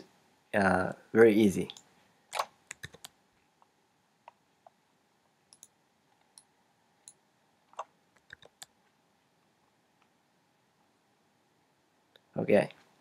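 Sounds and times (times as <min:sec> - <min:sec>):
faint computer mouse clicks: 0:05.5 - 0:08.8.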